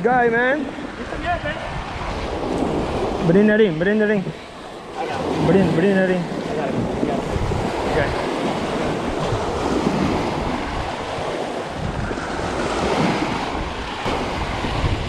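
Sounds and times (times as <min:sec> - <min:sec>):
small waves breaking: 0:00.0 - 0:15.0
surf washing over shallows: 0:00.0 - 0:15.0
wind buffeting microphone: 0:00.0 - 0:15.0.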